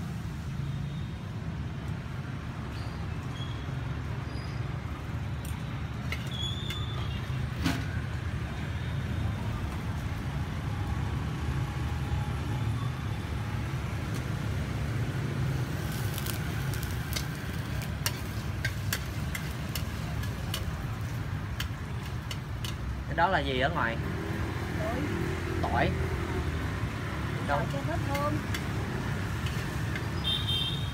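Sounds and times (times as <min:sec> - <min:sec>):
street traffic rumble: 0:00.0 - 0:30.9
motorbikes passing: 0:11.3 - 0:30.9.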